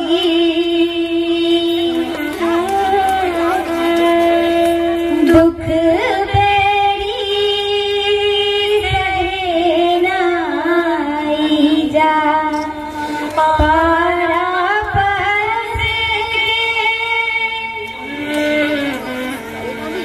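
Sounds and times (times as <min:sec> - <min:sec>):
folk singing through loudspeakers: 0:00.0 - 0:18.0.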